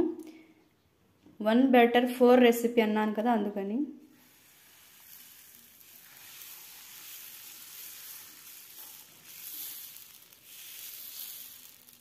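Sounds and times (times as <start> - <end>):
batter sizzling on a griddle: 4.1 - 12.0.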